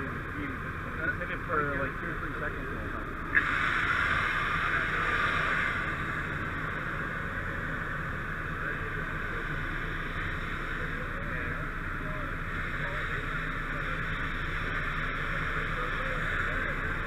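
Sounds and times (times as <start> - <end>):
faint voices: 0.0 - 17.0
low steady rumble: 0.0 - 17.0
nozzle spraying foam hiss: 3.3 - 11.7.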